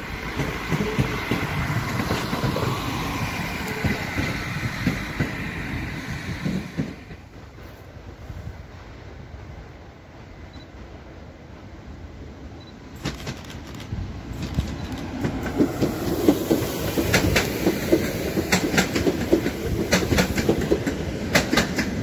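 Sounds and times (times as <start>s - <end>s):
wheels clicking over rail joints: 0.0s - 7.4s, 13.0s - 22.0s
train rolling rumble: 0.0s - 22.0s.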